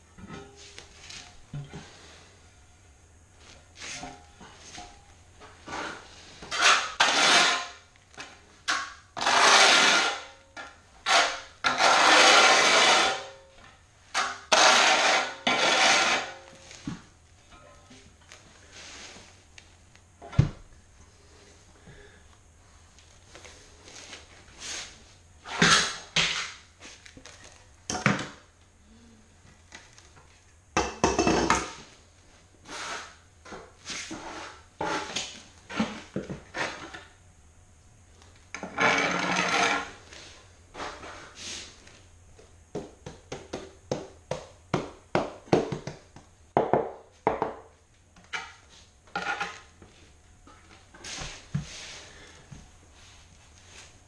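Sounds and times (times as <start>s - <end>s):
tile and trowel knocking: 46.6s - 47.7s.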